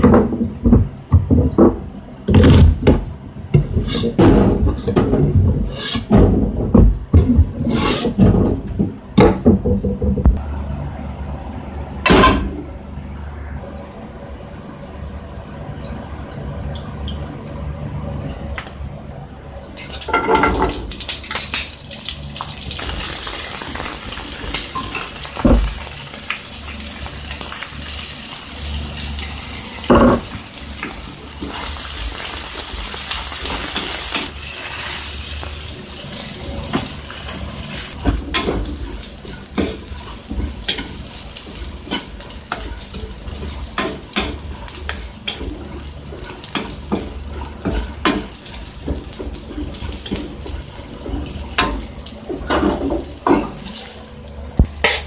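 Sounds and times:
beans sizzling in oil: 19.8 - 55.0.

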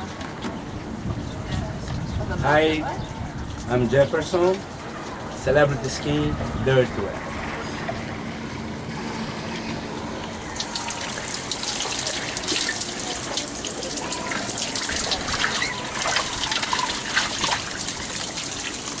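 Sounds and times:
shower spray hissing: 10.4 - 19.0.

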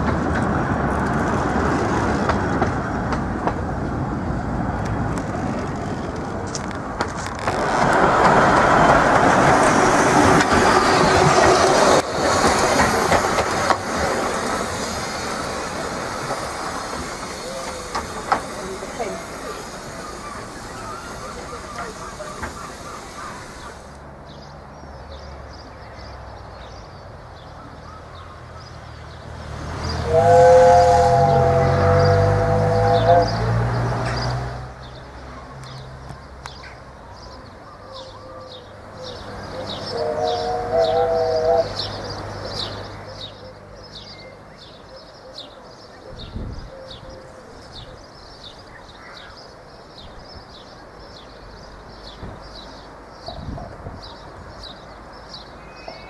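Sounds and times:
locomotive low rumble: 0.0 - 24.1, 29.1 - 37.7
birds chirping: 7.4 - 56.0
steam whistle chord: 30.0 - 33.4.

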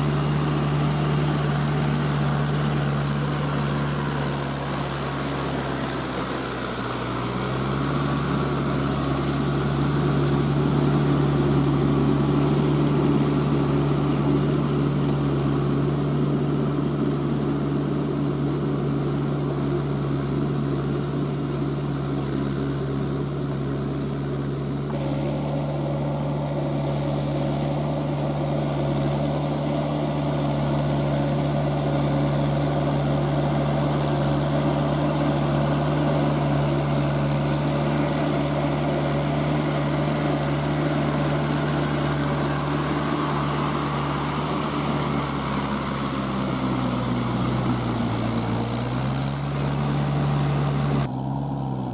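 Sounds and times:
tractor diesel engine under load: 0.0 - 51.9.

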